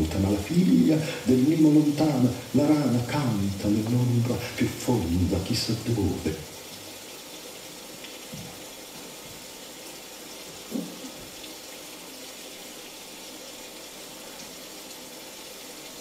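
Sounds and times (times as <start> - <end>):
rain falling: 0.0 - 16.0.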